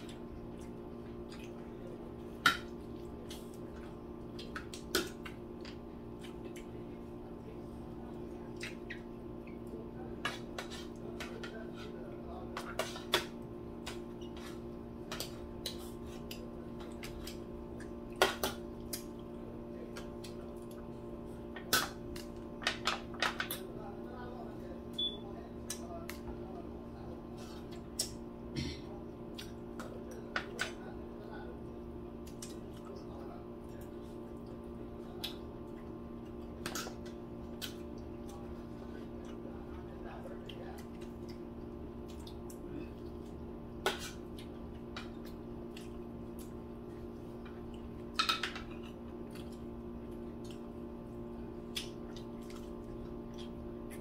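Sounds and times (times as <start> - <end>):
chewing and smacking: 0.0 - 6.9, 8.3 - 9.8, 12.6 - 22.5, 29.3 - 30.2, 32.2 - 54.0
steady low hum: 0.0 - 54.0.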